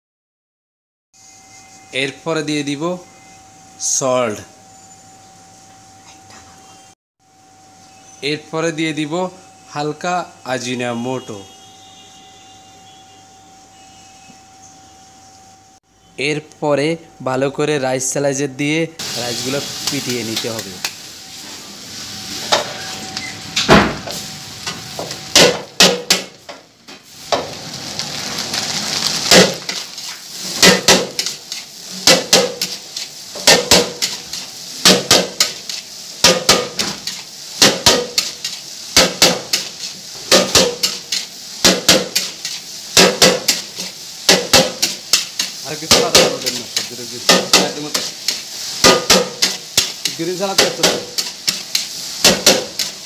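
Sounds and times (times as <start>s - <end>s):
rice sizzling: 19.0s - 53.0s
spatula clanking against wok: 30.6s - 32.8s, 33.4s - 53.0s.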